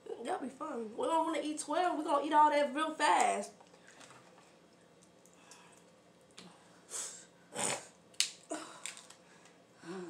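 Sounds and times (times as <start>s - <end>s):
crab shells cracking: 8.1s - 9.6s.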